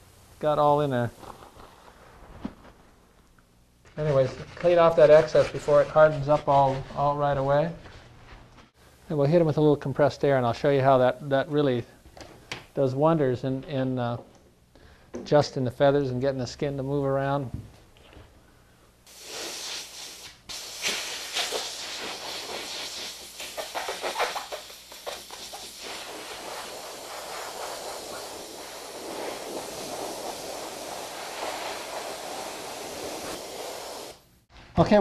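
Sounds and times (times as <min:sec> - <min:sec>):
compressed air hissing: 0:19.0 - 0:34.5.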